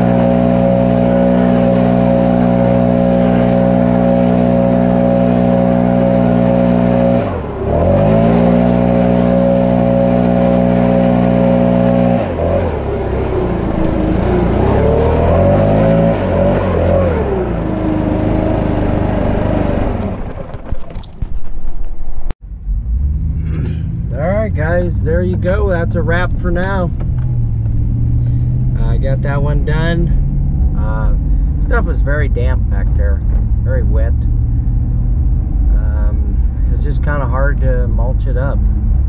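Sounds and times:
gas leaf blower running: 0.0 - 21.0.

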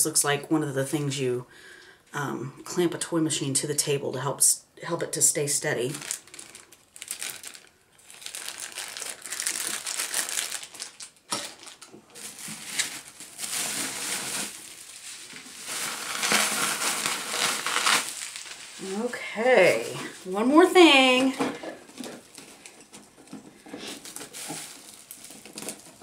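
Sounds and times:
bubble wrap crinkling: 5.8 - 26.0.

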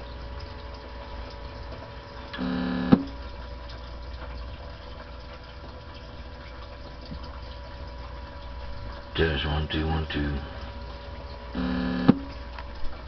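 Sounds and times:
radio electrical hum and hiss: 2.4 - 3.1, 9.1 - 12.4
electronic tone: 11.6 - 12.3.

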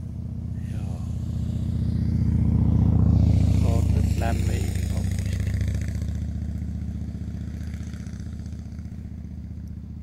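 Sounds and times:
vehicle engine humming: 0.0 - 10.0.

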